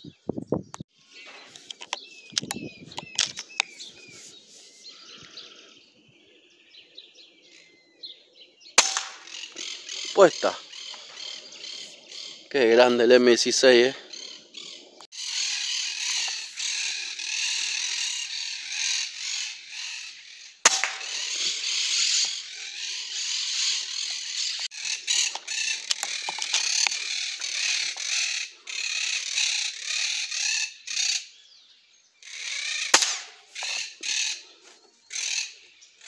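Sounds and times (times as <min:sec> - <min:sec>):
birds chirping and calling: 0:00.0 - 0:36.0
air rifle shots: 0:08.8 - 0:09.4, 0:20.6 - 0:21.4, 0:32.9 - 0:33.5.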